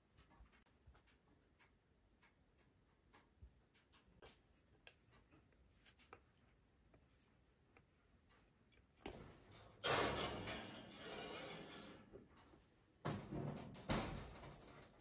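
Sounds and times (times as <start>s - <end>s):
baking dish sliding into oven: 9.8s - 12.1s.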